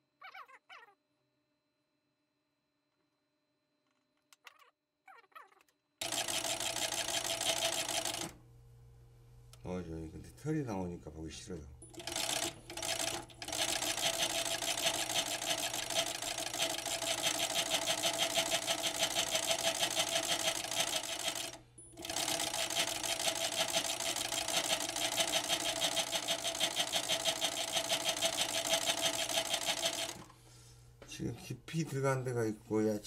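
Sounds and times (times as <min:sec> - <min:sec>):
sewing machine running: 0:06.0 - 0:08.4, 0:11.8 - 0:30.4.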